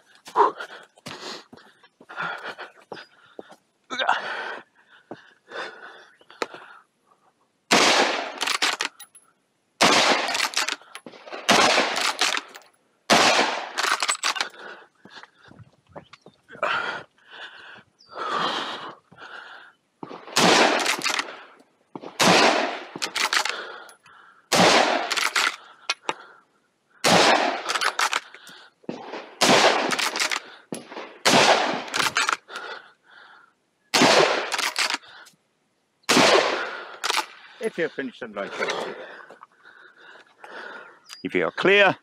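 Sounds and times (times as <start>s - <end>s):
rifle shots cracking: 7.7s - 9.0s, 9.8s - 14.5s, 20.1s - 21.3s, 22.0s - 23.6s, 24.5s - 25.6s, 27.0s - 28.3s, 28.9s - 32.5s, 33.9s - 35.0s, 36.1s - 37.4s.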